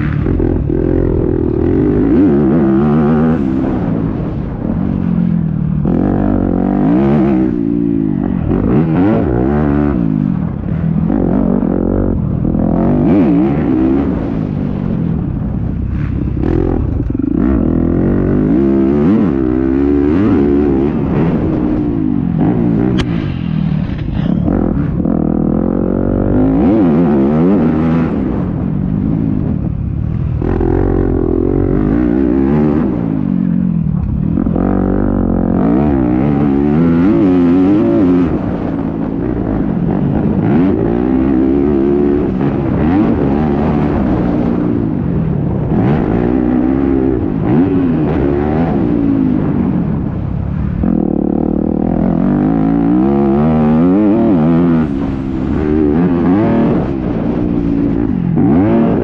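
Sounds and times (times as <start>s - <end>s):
motocross engine revving: 0.0s - 4.7s, 5.8s - 28.6s, 50.8s - 59.0s.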